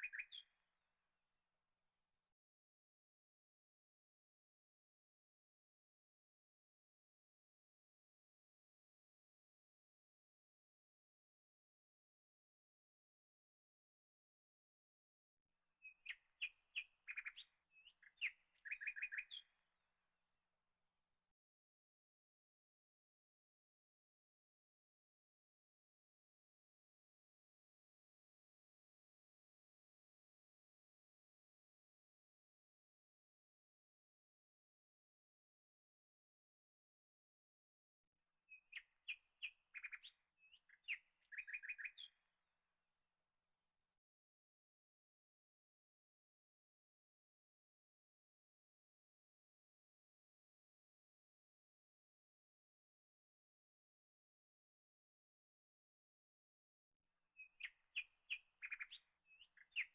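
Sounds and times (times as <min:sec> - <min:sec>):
small bird chirping: 0:00.0 - 0:00.6, 0:15.8 - 0:19.6, 0:38.5 - 0:42.2, 0:57.4 - 0:59.9.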